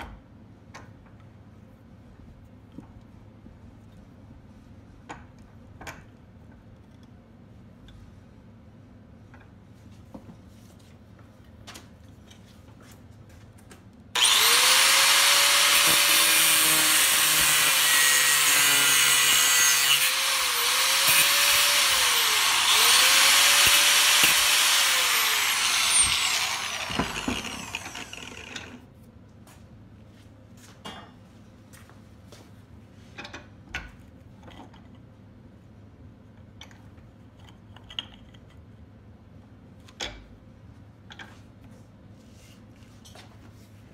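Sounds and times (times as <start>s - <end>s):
angle grinder cutting bolt: 14.2s - 28.8s.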